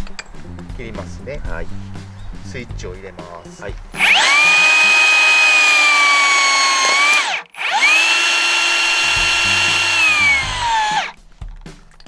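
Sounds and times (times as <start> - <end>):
electric motor cutting rebar: 4.0 - 11.2.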